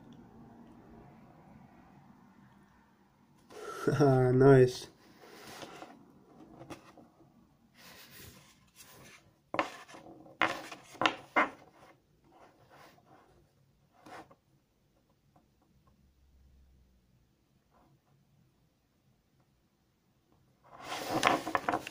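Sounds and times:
cards scraping on tabletop: 5.2s - 7.0s, 7.8s - 11.9s, 20.7s - 21.9s.

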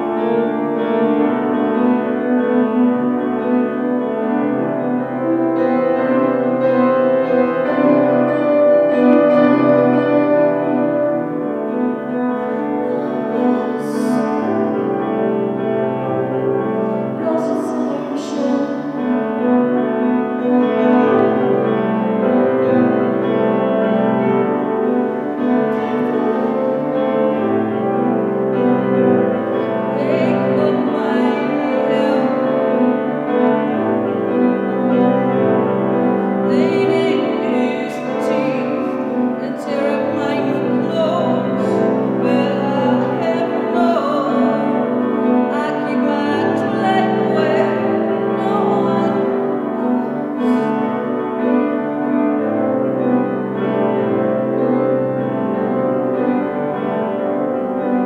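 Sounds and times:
piano chords: 0.0s - 58.0s
woman singing: 12.5s - 14.7s, 17.0s - 19.3s, 29.8s - 33.0s, 36.4s - 51.1s.

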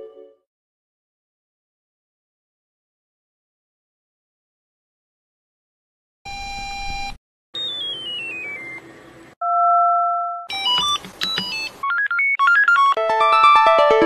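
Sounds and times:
climbing bleep melodies: 6.3s - 13.0s
falling electronic notes: 7.6s - 8.9s.

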